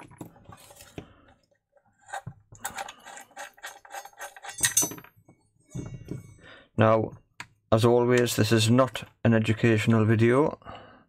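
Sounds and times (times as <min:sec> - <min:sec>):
screws and metal bracket rattling: 0:02.0 - 0:05.2.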